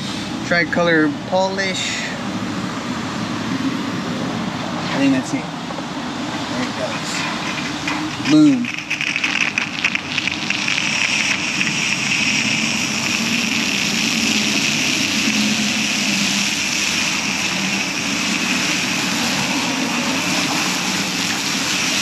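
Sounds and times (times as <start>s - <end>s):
pressure wand spray hissing: 8.2s - 22.0s.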